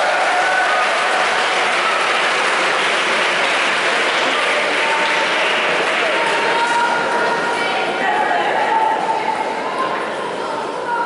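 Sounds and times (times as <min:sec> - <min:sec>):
spectators applauding: 0:00.0 - 0:07.4.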